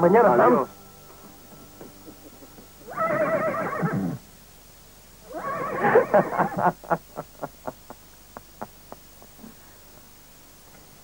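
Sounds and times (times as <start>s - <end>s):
man laughing loudly: 5.6s - 9.4s.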